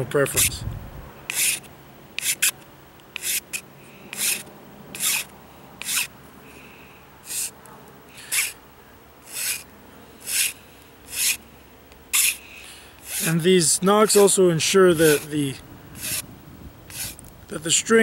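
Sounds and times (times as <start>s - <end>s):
file scraping wood: 1.3s - 2.6s, 3.2s - 4.4s, 5.0s - 6.1s, 7.3s - 7.5s, 8.2s - 8.6s, 9.3s - 9.6s, 10.2s - 11.4s, 12.2s - 12.4s, 13.0s - 13.5s, 15.0s - 15.3s, 16.0s - 16.2s, 16.9s - 17.2s.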